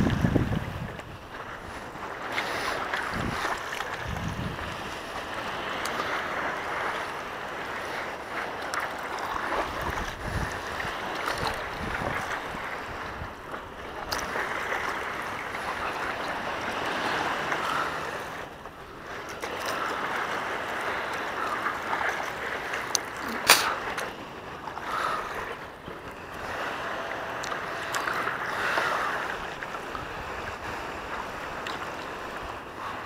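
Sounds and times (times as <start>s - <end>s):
wind on microphone: 0.0s - 24.0s
water sloshing around board: 0.0s - 33.0s.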